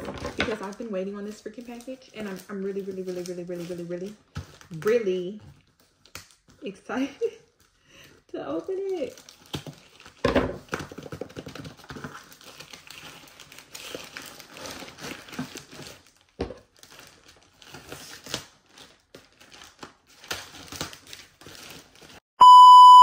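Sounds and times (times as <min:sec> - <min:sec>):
plastic bag crinkling: 0:00.0 - 0:06.5.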